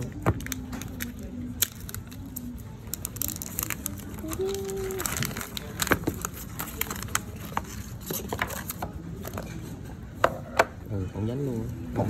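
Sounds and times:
packaging clicks and crackles: 0.0 - 9.4.

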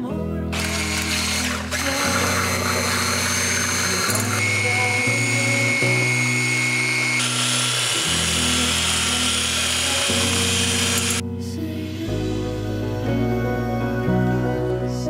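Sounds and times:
soft background music: 0.0 - 15.0
electric hand mixer whirring: 0.5 - 11.2.

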